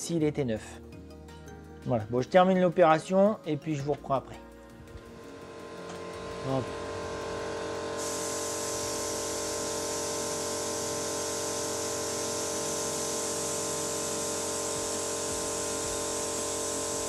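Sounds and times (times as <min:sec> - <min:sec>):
machine hum: 0:04.6 - 0:17.0
compressed air hissing: 0:06.0 - 0:17.0.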